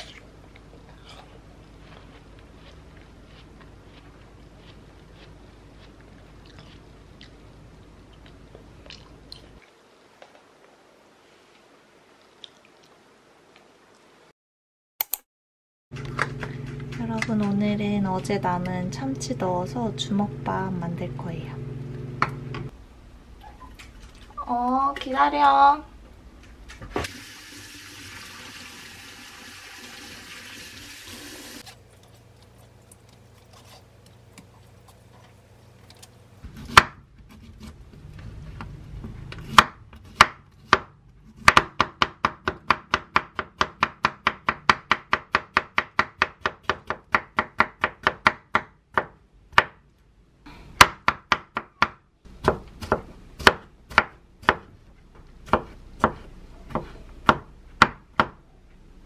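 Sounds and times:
knife chopping on wooden board: 0:36.5 - 0:37.8, 0:39.4 - 0:49.8, 0:50.8 - 0:54.7, 0:55.4 - 0:58.4.

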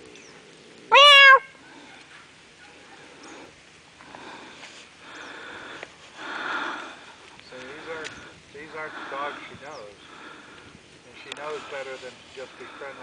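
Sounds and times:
short high animal cry: 0:00.9 - 0:01.5.

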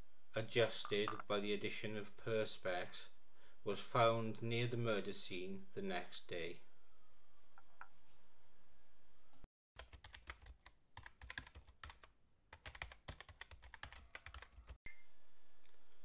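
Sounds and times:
keyboard typing clicks: 0:09.8 - 0:14.8.

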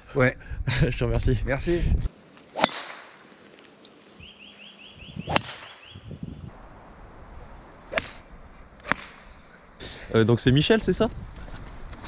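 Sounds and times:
golf club striking ball: 0:02.6 - 0:03.2, 0:05.3 - 0:05.9, 0:08.8 - 0:09.3.

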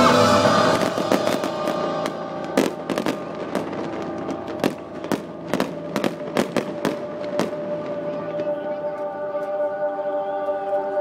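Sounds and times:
fireworks exploding: 0:00.0 - 0:08.6.

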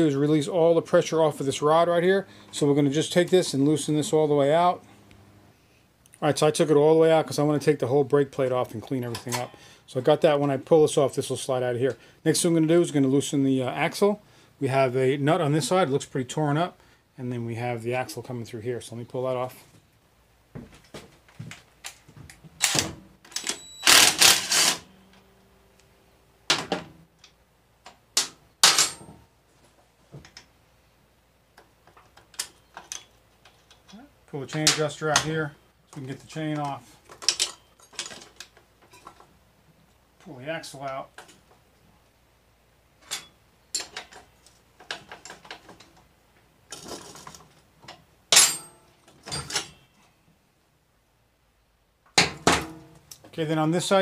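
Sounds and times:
metal tools clinking on wheel: 0:37.1 - 0:39.2, 0:48.3 - 0:50.0
sharp metal clank: 0:48.3 - 0:49.9.

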